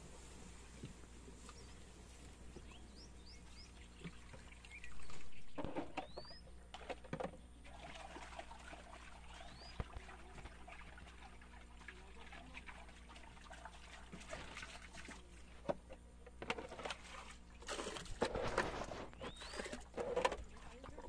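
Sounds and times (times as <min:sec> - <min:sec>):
bird chirps: 0:02.6 - 0:06.5, 0:09.3 - 0:09.9, 0:19.2 - 0:19.8
small splashes and clicks: 0:03.9 - 0:18.3
water pouring and splashing: 0:07.6 - 0:15.4.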